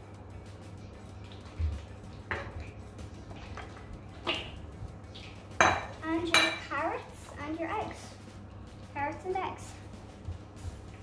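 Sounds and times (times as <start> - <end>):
bowls and utensils clattering: 1.6 - 7.4.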